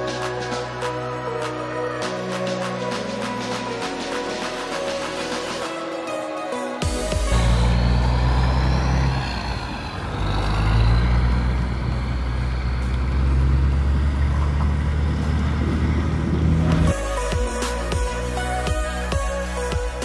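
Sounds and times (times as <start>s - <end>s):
diesel truck engine pulling: 6.8s - 19.7s.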